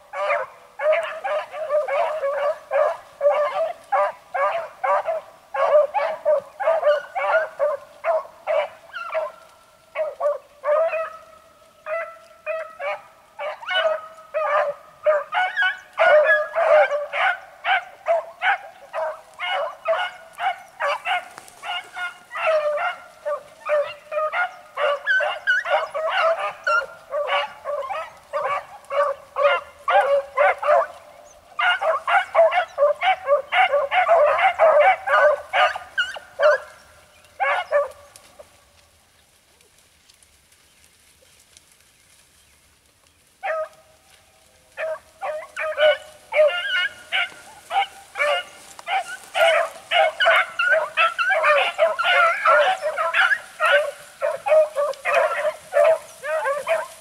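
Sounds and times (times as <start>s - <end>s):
hounds baying and yelping: 0.0s - 38.9s, 43.2s - 57.0s
loud young hound baying: 0.1s - 38.5s, 43.4s - 43.9s, 44.7s - 57.0s.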